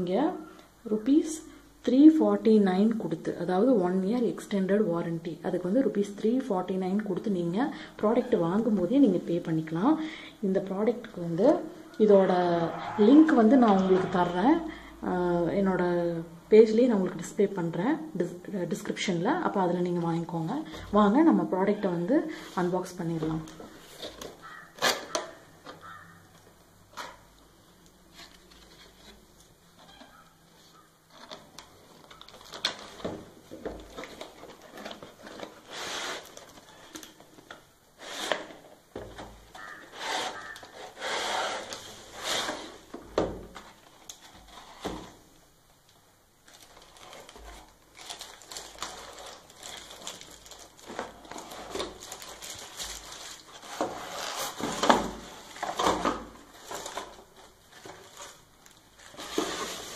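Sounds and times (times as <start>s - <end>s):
plastic wrapping crinkling: 22.6s - 37.6s, 39.4s - 45.2s, 45.9s - 59.9s
cardboard scraping and rustling: 28.1s - 37.1s, 38.0s - 45.2s, 46.5s - 59.9s.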